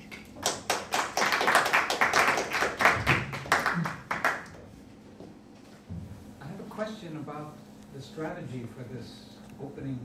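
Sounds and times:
audience clapping: 0:00.0 - 0:04.6.

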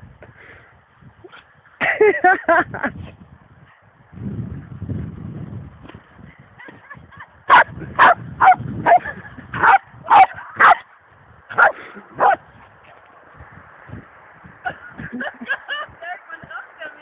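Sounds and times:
dog barking: 0:07.5 - 0:10.8, 0:11.6 - 0:12.4.

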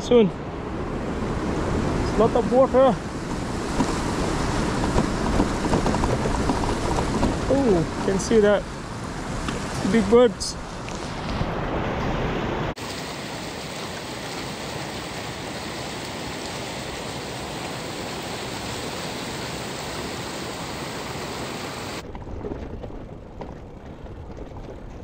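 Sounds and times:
bicycle rolling on paved path: 0:03.1 - 0:09.7, 0:12.8 - 0:25.0
river water rushing: 0:09.0 - 0:22.0.

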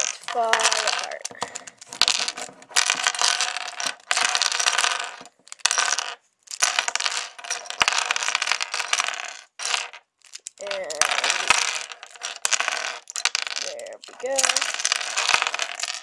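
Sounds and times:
plastic puzzle pieces clattering: 0:00.0 - 0:16.0.

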